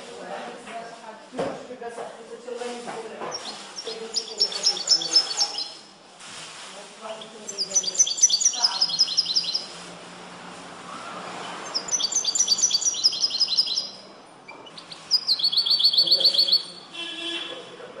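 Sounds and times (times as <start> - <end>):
goldfinch singing rapid high notes: 3.3 - 5.8, 7.5 - 9.7, 11.6 - 14.0, 14.6 - 16.8.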